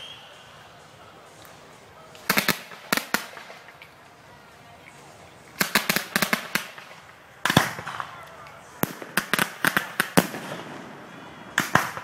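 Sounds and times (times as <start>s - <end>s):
fireworks bangs: 2.2s - 3.8s, 5.6s - 12.0s.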